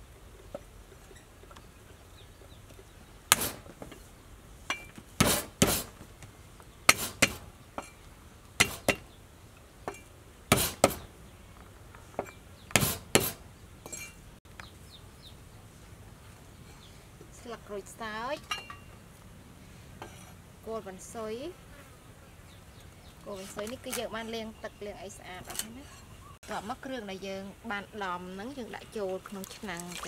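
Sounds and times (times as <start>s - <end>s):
knife chopping on wooden board: 12.8s - 13.4s.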